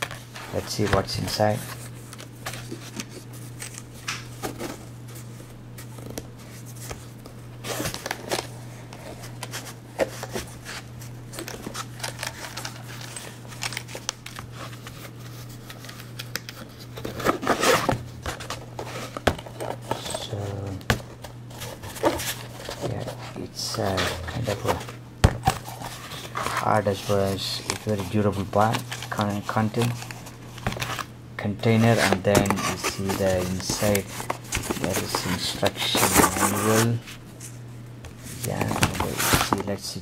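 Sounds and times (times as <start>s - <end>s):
low steady hum: 0.0s - 40.0s
case handling scrapes and clicks: 21.6s - 37.0s.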